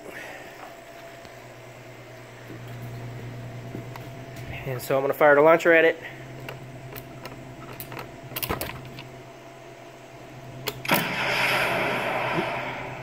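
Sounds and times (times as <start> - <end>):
launcher firing whoosh: 10.8 - 13.0.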